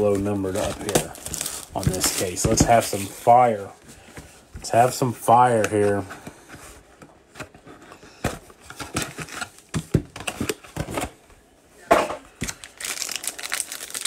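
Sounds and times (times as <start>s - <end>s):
foil pack crinkling: 0.0s - 3.4s, 12.4s - 14.0s.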